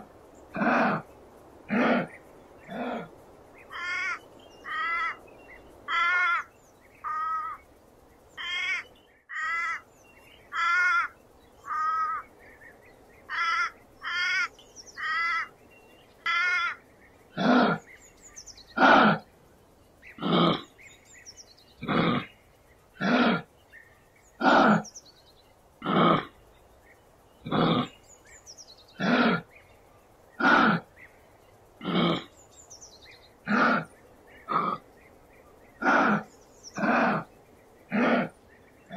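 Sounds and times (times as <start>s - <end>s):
animal calling: 0.0s - 1.1s, 1.7s - 5.2s, 16.2s - 17.9s, 21.8s - 22.4s, 24.4s - 25.0s, 25.8s - 26.4s, 27.4s - 28.0s, 28.9s - 29.5s, 30.4s - 31.0s, 31.8s - 32.4s, 33.4s - 34.8s, 35.8s - 38.9s.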